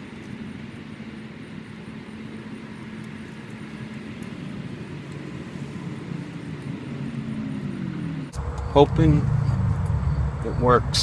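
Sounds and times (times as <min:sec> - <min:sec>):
traffic engine hum: 0:00.0 - 0:11.0
vehicle passing by: 0:05.2 - 0:11.0.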